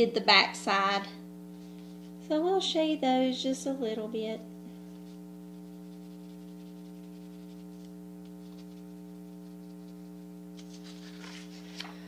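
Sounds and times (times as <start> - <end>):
electrical hum: 0.0 - 12.0
pencil scratching on paper: 4.9 - 10.2.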